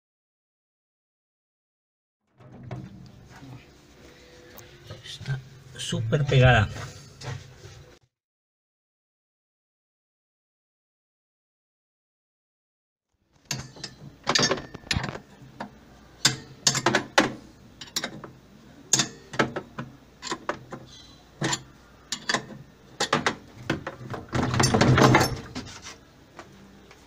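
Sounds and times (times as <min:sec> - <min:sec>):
metallic rattle: 0:21.4 - 0:25.9.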